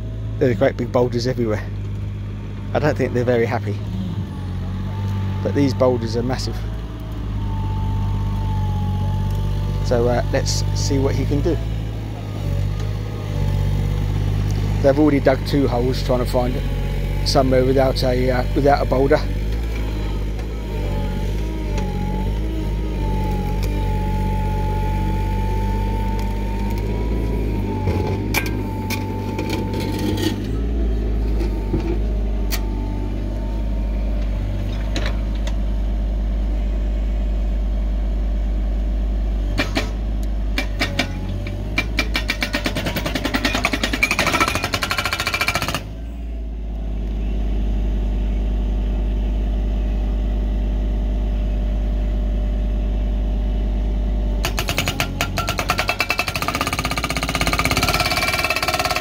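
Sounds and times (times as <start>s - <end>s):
excavator engine running: 0.0s - 59.0s
hydraulic breaker hammering: 39.5s - 45.9s, 54.4s - 59.0s.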